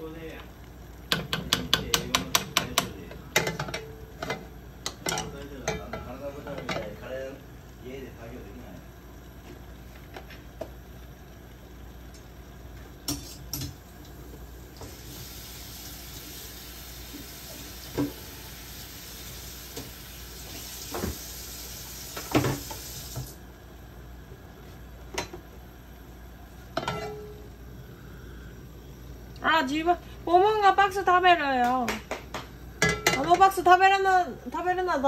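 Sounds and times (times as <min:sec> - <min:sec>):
gas stove hiss: 0:00.0 - 0:35.0
pans and utensils clinking: 0:26.8 - 0:27.4, 0:32.8 - 0:33.5.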